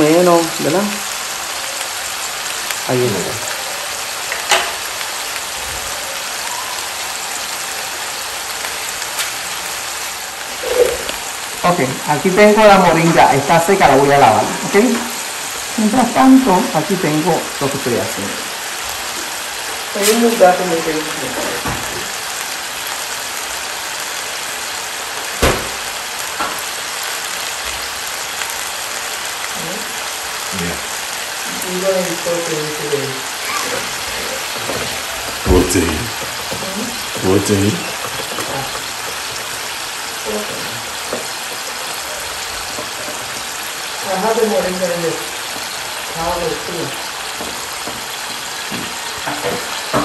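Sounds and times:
food sizzling in hot oil: 0:00.0 - 0:50.0
sharp knock: 0:25.4 - 0:25.8
oil popping: 0:32.9 - 0:44.1.

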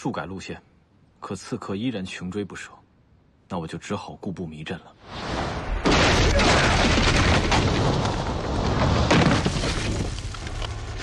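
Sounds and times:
explosion blasts: 0:05.1 - 0:10.2.

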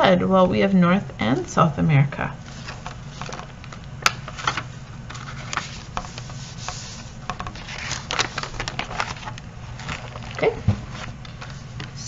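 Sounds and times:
low steady hum: 0:00.0 - 0:12.0
paper rustling and scraping: 0:02.4 - 0:03.5, 0:04.2 - 0:11.9
page turning: 0:02.4 - 0:12.0.

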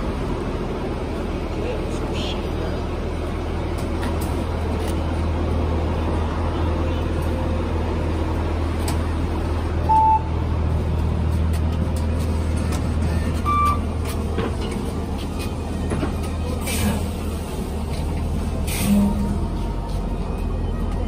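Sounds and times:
bus engine idling: 0:00.0 - 0:21.0
short electronic beeps: 0:09.9 - 0:10.3.

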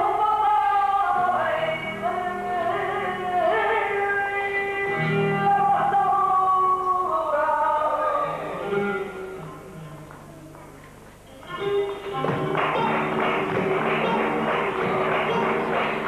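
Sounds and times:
person singing sliding melodies: 0:00.0 - 0:16.0
dance music with instruments: 0:11.2 - 0:16.0.

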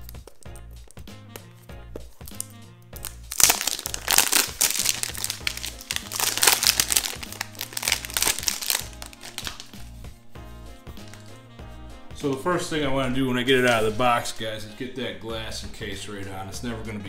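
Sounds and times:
background music: 0:00.0 - 0:17.0
plastic shrink wrap crinkling: 0:01.9 - 0:10.0, 0:11.0 - 0:11.3.

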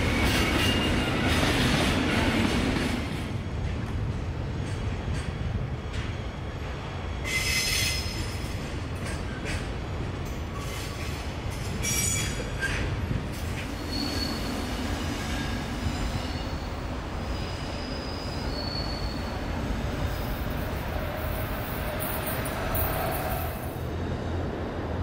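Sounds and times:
train wheel squeals: 0:00.0 - 0:01.6, 0:07.2 - 0:09.7, 0:10.5 - 0:24.4
train low rolling rumble: 0:00.0 - 0:25.0.

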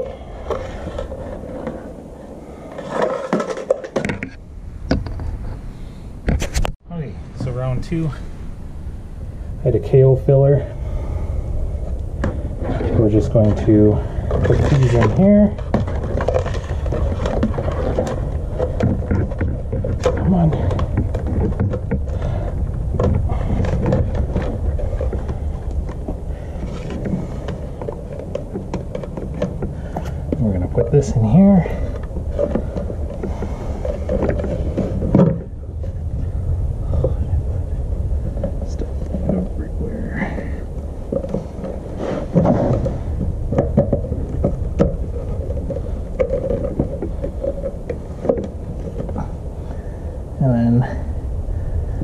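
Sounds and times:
plastic box and wires handled: 0:00.0 - 0:05.4, 0:11.9 - 0:36.3, 0:40.6 - 0:49.7
steady low rumble: 0:00.0 - 0:52.0.

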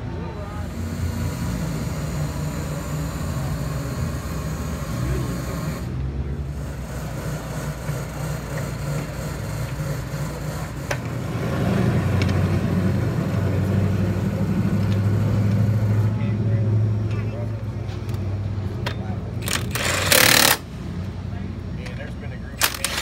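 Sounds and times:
vehicle engine idling: 0:00.0 - 0:23.0
sharp metallic click: 0:18.8 - 0:20.6, 0:22.6 - 0:23.0.

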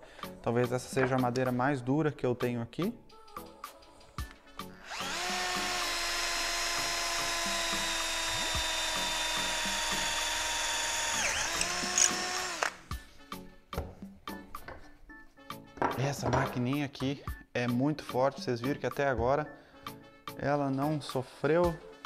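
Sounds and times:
power drill boring into hardwood: 0:04.8 - 0:12.8.

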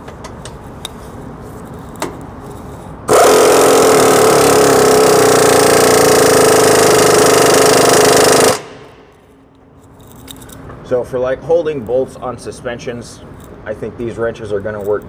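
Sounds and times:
impact wrench hammering: 0:03.1 - 0:09.1.

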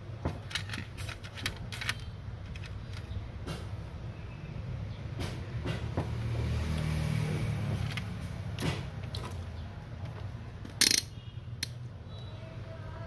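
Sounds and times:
tools clicking and knocking: 0:00.2 - 0:03.7, 0:07.7 - 0:09.4, 0:10.0 - 0:11.8.

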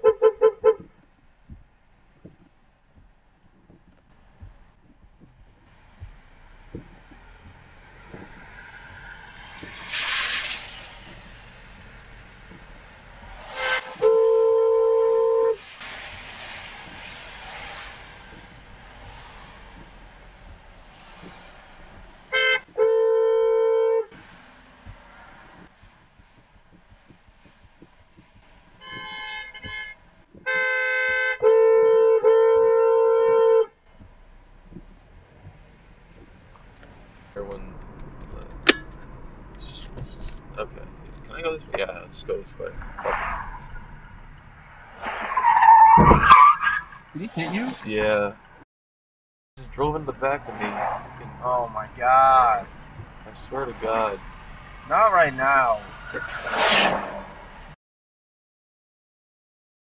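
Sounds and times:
car horn blast: 0:00.0 - 0:00.8, 0:13.5 - 0:15.6, 0:22.3 - 0:24.2, 0:28.8 - 0:33.8.

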